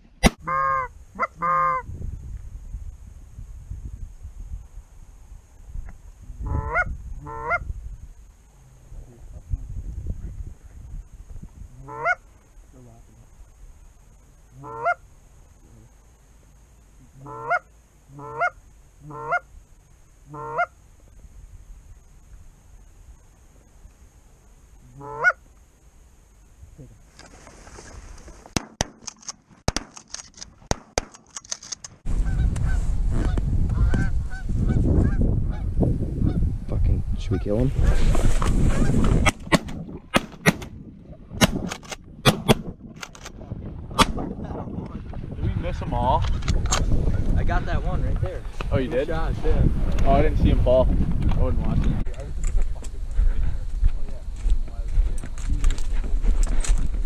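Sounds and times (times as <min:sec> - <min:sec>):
goose honking: 0:00.4 - 0:01.8, 0:11.8 - 0:12.2, 0:14.6 - 0:15.0, 0:17.2 - 0:19.4, 0:20.3 - 0:20.7, 0:25.0 - 0:25.4
shotguns firing: 0:39.2 - 0:40.7, 0:41.4 - 0:42.7.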